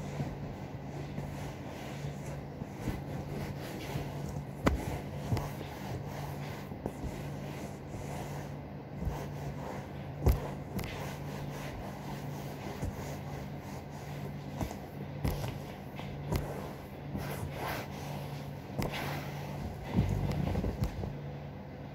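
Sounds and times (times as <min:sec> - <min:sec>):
cloth rubbing on leather seat: 0:00.0 - 0:21.2
steady low hum: 0:00.0 - 0:21.9.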